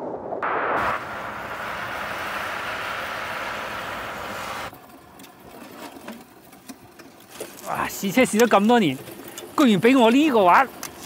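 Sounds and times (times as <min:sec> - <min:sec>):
cars driving past on ice: 0:00.4 - 0:05.0.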